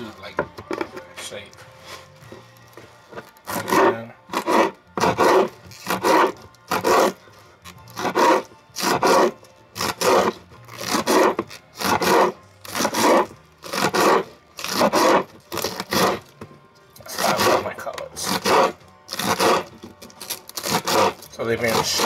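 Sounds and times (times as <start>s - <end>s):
knife slicing on wooden board: 3.5s - 7.2s, 7.9s - 16.3s, 17.1s - 17.6s, 18.2s - 19.7s, 20.6s - 22.0s.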